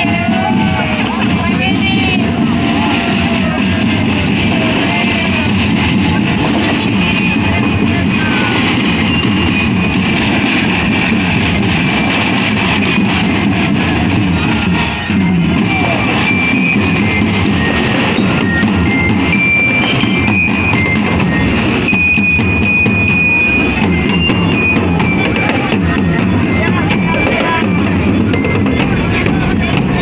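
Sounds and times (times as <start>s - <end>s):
bell lyra melody: 0.0s - 30.0s
snare and bass drums beating: 0.0s - 30.0s.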